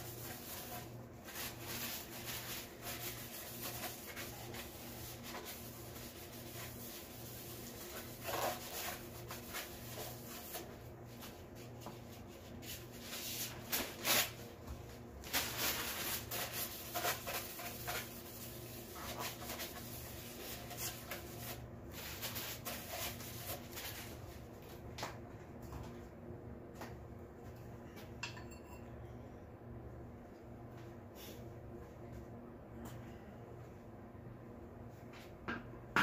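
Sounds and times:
paper towel tearing and rubbing: 0.0s - 10.7s, 12.7s - 14.4s, 15.2s - 24.2s
steady low hum: 0.0s - 36.0s.

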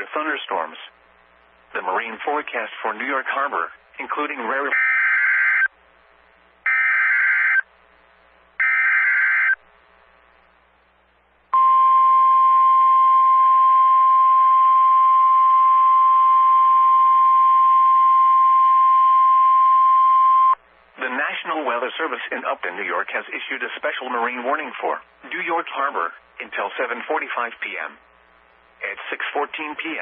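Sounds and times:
steady alarm tone: 4.6s - 5.7s, 6.7s - 7.7s, 8.6s - 9.6s, 11.6s - 20.6s
warbling data tones: 8.6s - 9.6s.

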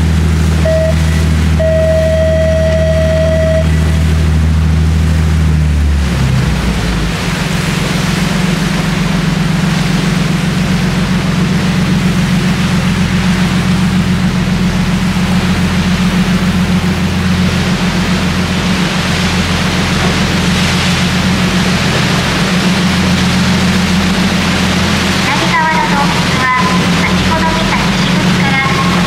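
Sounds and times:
boat engine running: 0.0s - 29.0s
water rushing past hull: 0.0s - 29.0s
steady beep: 0.6s - 4.0s.

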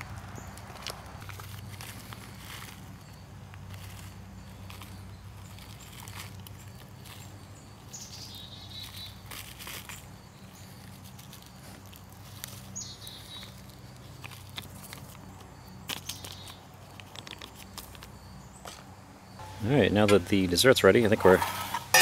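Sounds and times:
steady low hum: 0.0s - 22.0s
plastic packet crinkling: 0.8s - 7.4s, 10.7s - 18.1s
bird chirping: 4.0s - 11.6s, 12.3s - 21.3s.

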